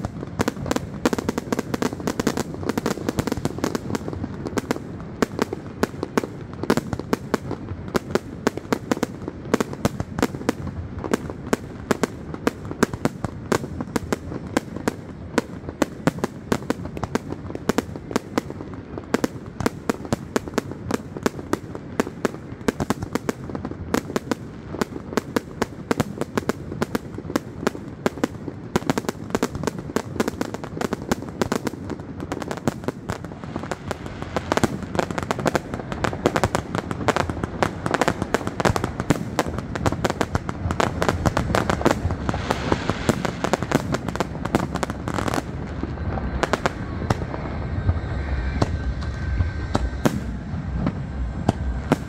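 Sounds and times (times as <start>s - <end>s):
fireworks bangs and crackling: 0.0s - 52.0s.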